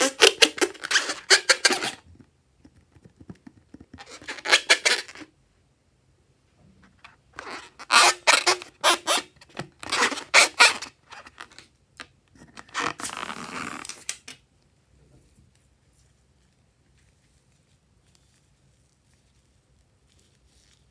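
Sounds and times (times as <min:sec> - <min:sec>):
rubber balloon squeaking: 0:00.0 - 0:02.2, 0:03.8 - 0:05.3, 0:07.4 - 0:11.5, 0:12.6 - 0:14.0.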